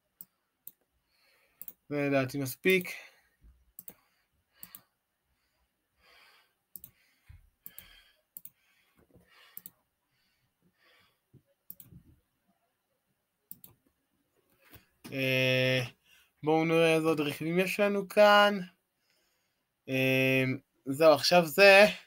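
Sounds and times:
computer mouse clicks: 1.6 - 1.8, 3.8 - 4.0, 4.6 - 4.9, 6.7 - 7.0, 7.6 - 9.8, 11.7 - 12.1, 13.5 - 13.8.

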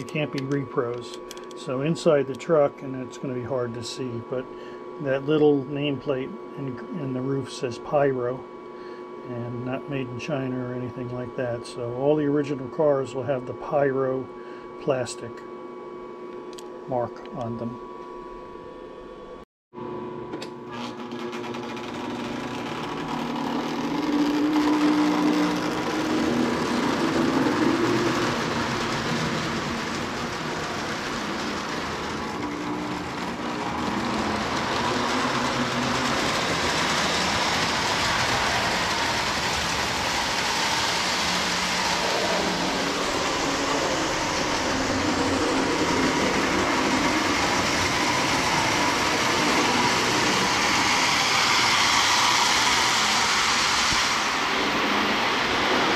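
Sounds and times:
toy train whirring on track: 20.7 - 55.9.

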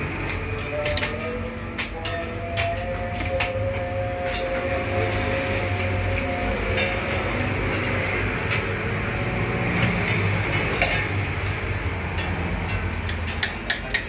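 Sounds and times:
metal mug and utensils clinking: 5.9 - 14.0.

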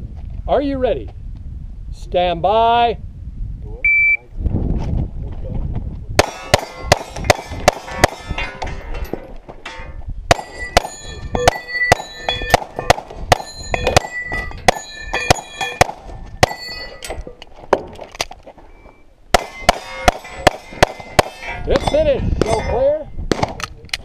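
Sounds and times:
steel targets clanging: 6.2 - 17.5, 18.7 - 23.0.

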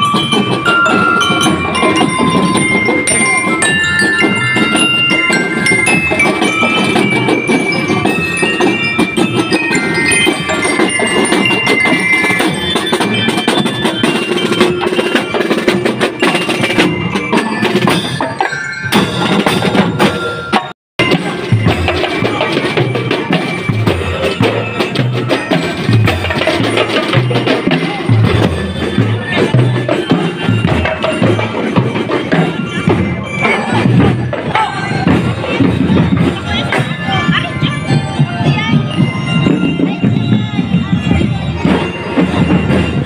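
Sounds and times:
bell lyre melody: 0.0 - 43.0.

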